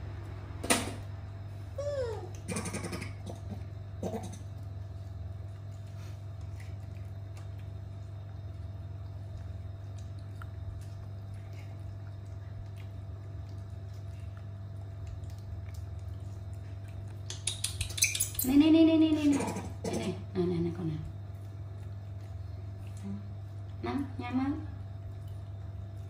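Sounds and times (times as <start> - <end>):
low room hum: 0.0 - 26.0
monkeys eating wet smacks: 2.2 - 18.5, 21.0 - 23.8.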